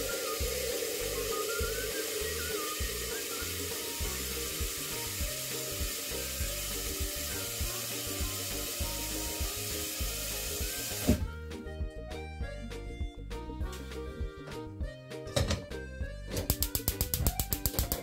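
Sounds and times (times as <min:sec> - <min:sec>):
tap water running into pot: 0:00.0 - 0:11.2, 0:16.4 - 0:18.0
music with steady beat: 0:00.0 - 0:18.0.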